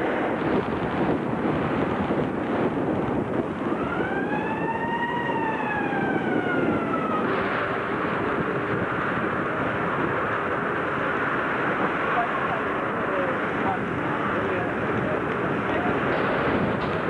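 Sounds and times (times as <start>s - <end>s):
steady background rush: 0.0s - 17.0s
siren-like wail: 3.5s - 10.8s.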